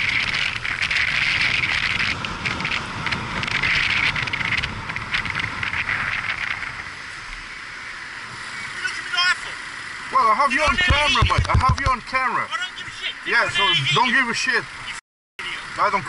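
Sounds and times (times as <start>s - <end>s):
wind on microphone: 0.0s - 8.8s
crackly hiss: 0.0s - 16.0s
motorcycle riding: 0.0s - 16.0s.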